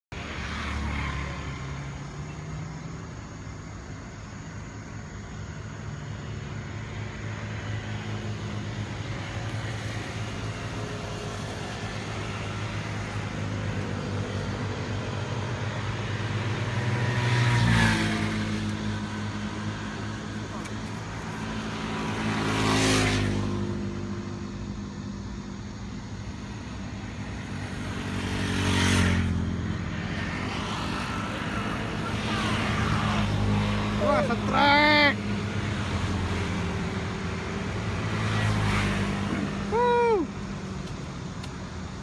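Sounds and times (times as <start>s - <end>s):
steady road traffic: 0.0s - 42.0s
vehicle passing close: 26.3s - 41.2s.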